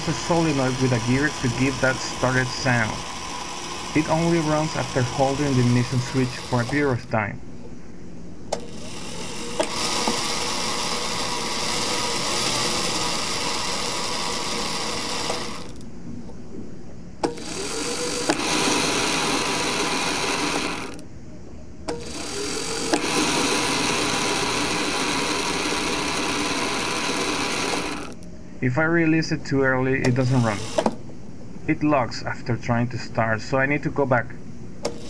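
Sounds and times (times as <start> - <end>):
electric motor spinning up: 0.0 - 7.1, 8.5 - 15.8, 17.2 - 21.0, 21.9 - 28.2, 30.0 - 31.0
gear cranking with whirring grind: 0.0 - 7.3, 8.5 - 15.9, 17.2 - 21.0, 21.9 - 28.3, 29.8 - 31.0
solenoid starter clicking: 9.4 - 15.8, 17.2 - 21.0, 21.9 - 28.2.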